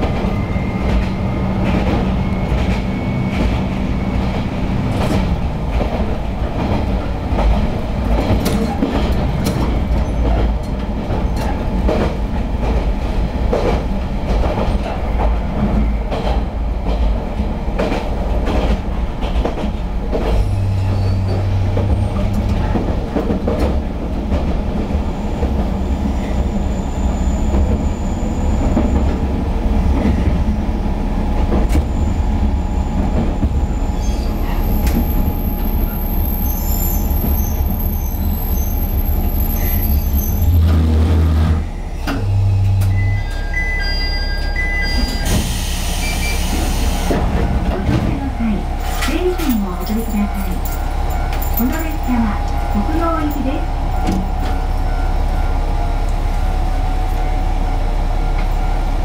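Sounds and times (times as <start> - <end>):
diesel railcar rumbling on track: 0.0 - 59.0
wheel or brake squeals: 20.4 - 22.2, 32.7 - 40.7, 41.6 - 46.8.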